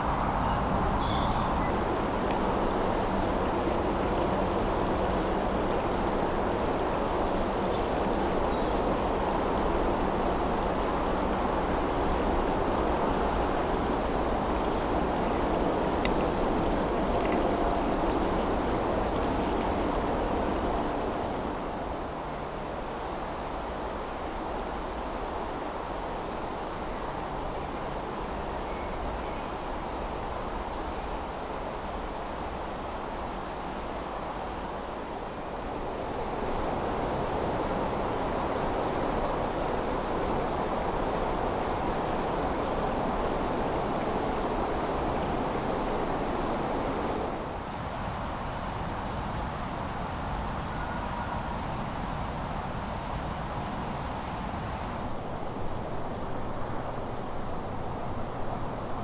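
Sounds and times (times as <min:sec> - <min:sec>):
small stream flowing: 0:00.0 - 0:59.0
steady low rushing noise: 0:54.8 - 0:59.0.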